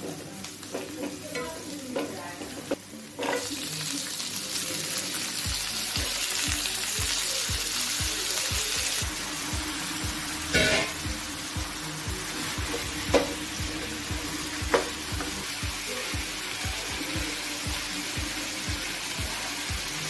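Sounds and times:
food sizzling in oil: 0.0 - 20.0
background music beat: 5.1 - 20.0.

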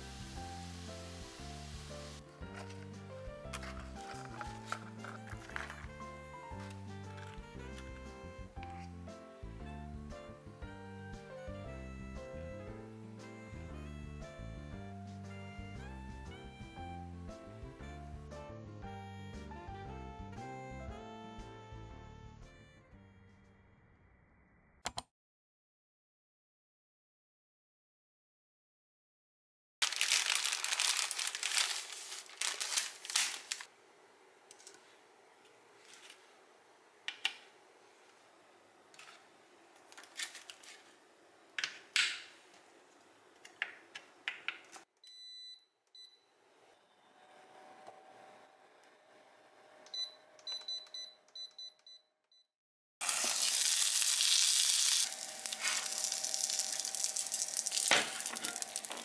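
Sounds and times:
dumplings sizzling in a pan: 0.0 - 2.2, 53.0 - 59.0
plastic packaging crinkling: 2.0 - 7.4, 29.8 - 33.7, 40.0 - 40.9, 53.0 - 59.0.

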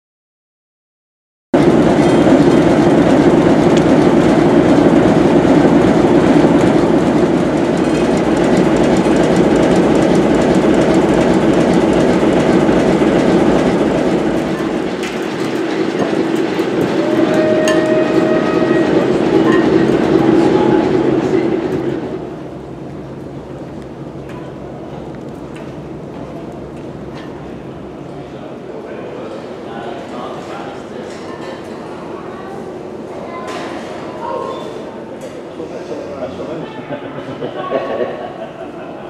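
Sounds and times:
diesel engine droning: 1.6 - 28.5.

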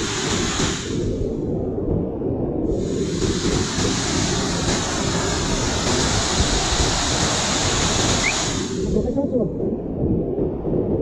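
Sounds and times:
waterfall pouring onto rocks: 2.8 - 8.8.

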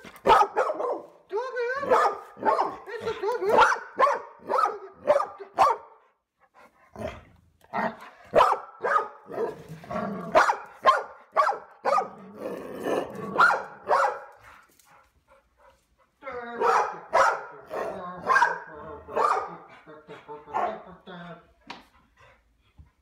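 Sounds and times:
dog barking: 0.2 - 1.2, 1.8 - 2.9, 3.5 - 6.0, 8.3 - 9.6, 10.3 - 12.2, 13.2 - 14.4, 16.6 - 19.7
dog growling: 6.9 - 8.3, 9.5 - 10.4, 12.1 - 13.4.

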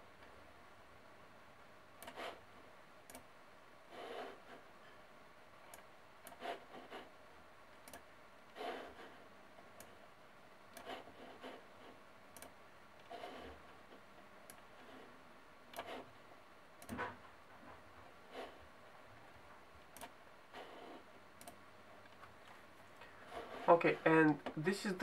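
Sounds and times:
computer mouse clicks: 2.0 - 2.4, 3.0 - 3.3, 5.6 - 6.6, 7.8 - 8.1, 9.7 - 10.0, 10.7 - 11.0, 12.3 - 13.5, 14.4 - 14.7, 15.7 - 16.0, 16.8 - 17.1, 19.8 - 22.3
mouse rubbing on pad: 2.1 - 2.4, 3.9 - 4.7, 6.4 - 7.1, 8.6 - 9.3, 10.8 - 12.0, 13.0 - 14.0, 14.7 - 15.2, 15.8 - 16.2, 18.2 - 18.6, 20.5 - 21.1, 23.1 - 24.3.

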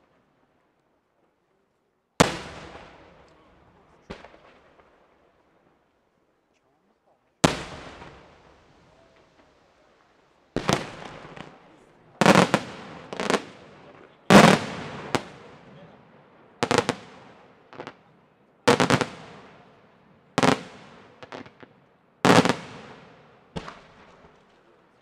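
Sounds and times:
smaller firework reports: 2.2 - 5.7, 6.9 - 21.6.

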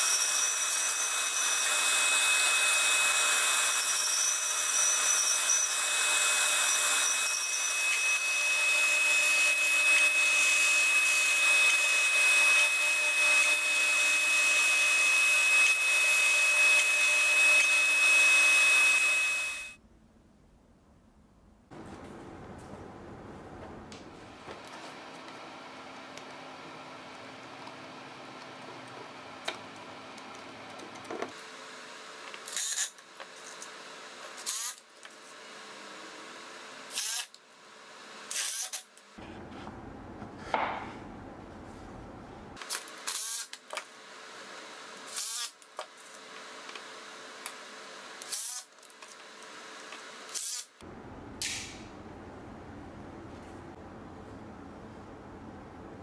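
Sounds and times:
cordless drill winding up and down: 4.8 - 19.8, 36.9 - 37.4, 48.2 - 48.7, 50.3 - 50.8.

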